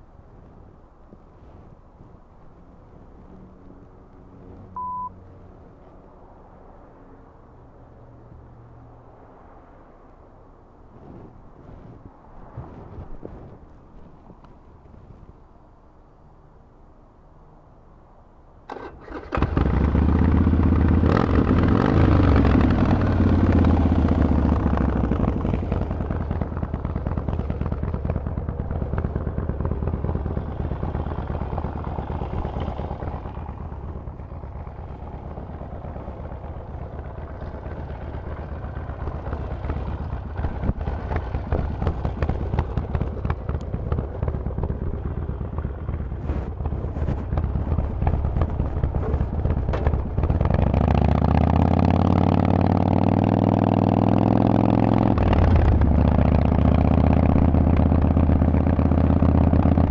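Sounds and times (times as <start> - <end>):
motorcycle engine starting and revving: 18.7 - 59.9.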